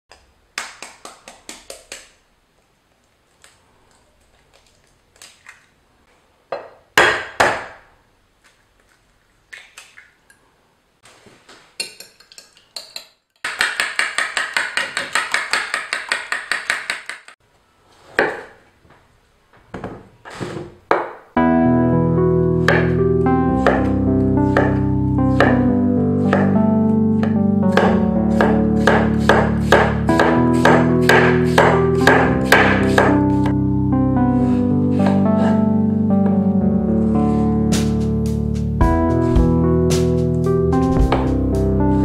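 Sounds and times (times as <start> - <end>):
eggs beaten with fork: 11.8 - 17.4.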